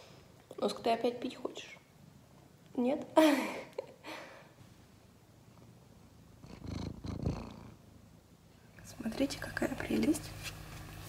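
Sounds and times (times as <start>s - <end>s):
cat purring: 5.3s - 8.2s.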